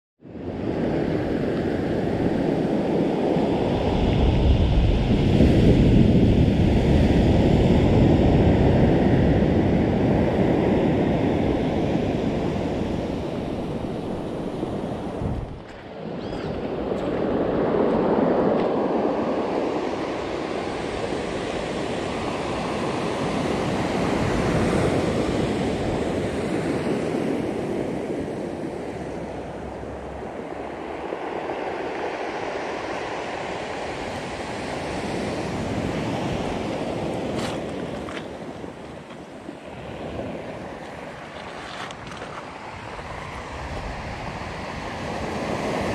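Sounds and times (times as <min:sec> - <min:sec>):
surf washing on pebble beach: 0:00.5 - 0:45.9.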